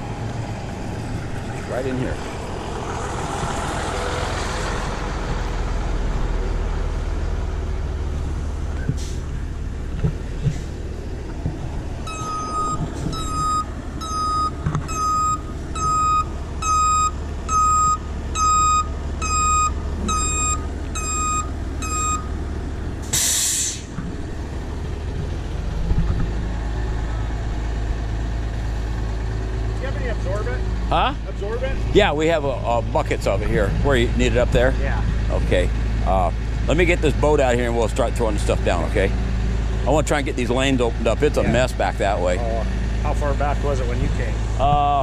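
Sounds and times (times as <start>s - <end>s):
truck engine running: 0.0s - 45.0s
reverse alarm beeps: 12.0s - 22.3s
air brakes hiss: 23.0s - 23.9s.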